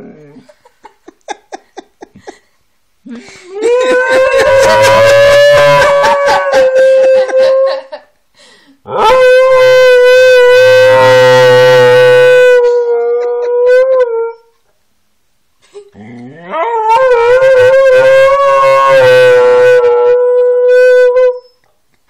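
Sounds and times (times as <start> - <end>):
dog howling: 3.6 - 7.9, 8.9 - 14.5, 16.4 - 21.5.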